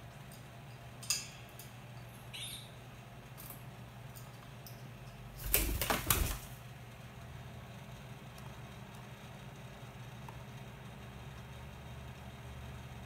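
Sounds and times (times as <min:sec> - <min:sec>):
parakeet wings flapping: 0:05.4 - 0:06.6.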